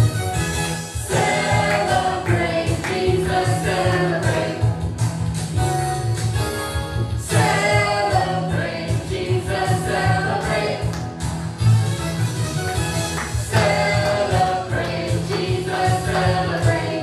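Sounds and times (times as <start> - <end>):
group singing praise song: 1.0 - 4.9, 7.2 - 11.1, 13.4 - 17.0.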